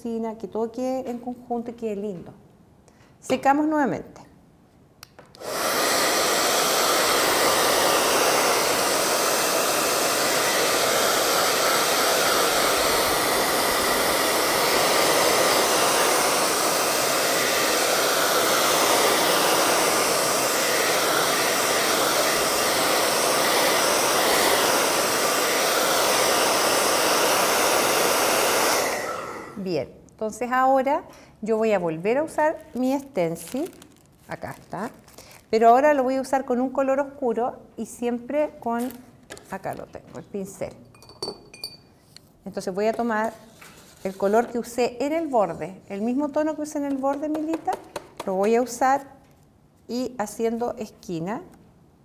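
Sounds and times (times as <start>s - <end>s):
hair dryer blowing: 5.4s - 29.7s, 44.1s - 44.9s, 46.0s - 48.8s.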